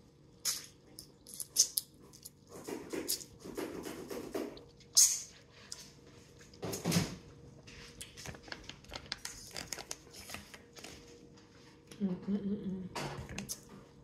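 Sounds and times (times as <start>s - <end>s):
plastic pouch crinkling: 8.0s - 11.0s.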